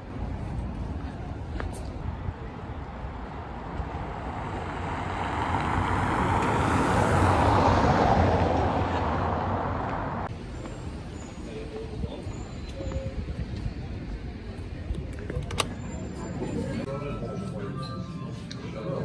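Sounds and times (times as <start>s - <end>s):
street traffic noise: 0.0s - 19.0s
vehicle passing close by: 3.1s - 10.3s.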